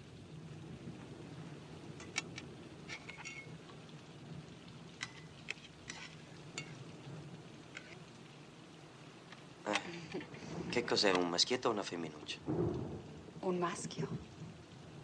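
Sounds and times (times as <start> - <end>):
cutlery and dishes clinking: 2.0 - 3.5, 5.0 - 6.8.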